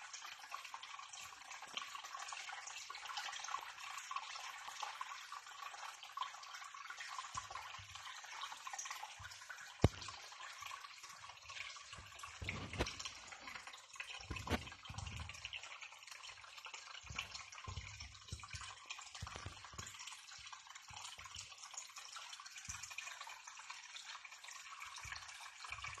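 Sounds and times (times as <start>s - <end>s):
aquarium water bubbling: 0.0s - 26.0s.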